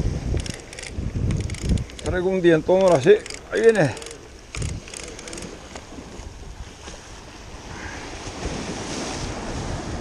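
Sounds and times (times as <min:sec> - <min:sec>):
wind on microphone: 0:00.0 - 0:10.0
fishing reel clicking: 0:00.4 - 0:05.5
waves washing against rocks: 0:03.5 - 0:10.0.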